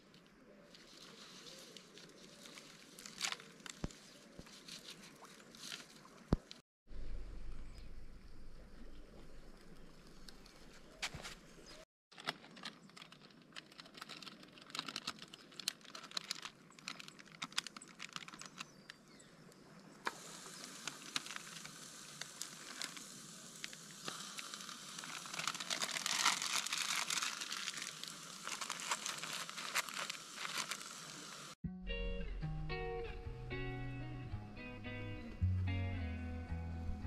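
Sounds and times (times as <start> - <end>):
twig fire crackling: 0.0 - 6.6, 8.0 - 31.6
patty sizzling in a pan: 20.1 - 31.6.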